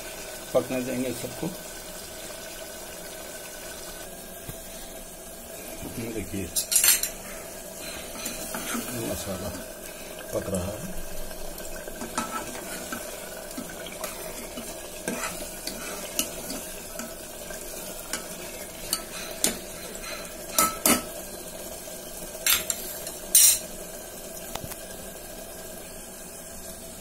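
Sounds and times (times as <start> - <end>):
curry sizzling in pot: 0.0 - 27.0
ladle scraping metal pot: 7.8 - 9.2, 12.0 - 21.1.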